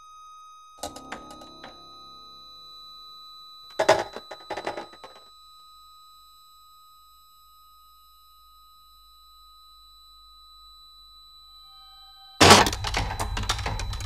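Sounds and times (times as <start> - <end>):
noisy clattering hits: 0.8 - 2.6, 12.4 - 14.0
high electronic tones: 0.8 - 5.0.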